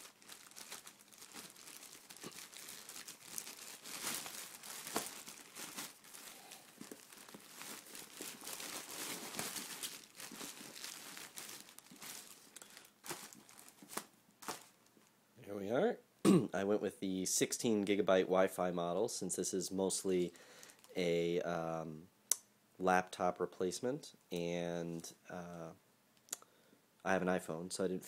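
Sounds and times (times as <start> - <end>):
packaging crinkling: 0.0 - 14.9, 20.6 - 20.9.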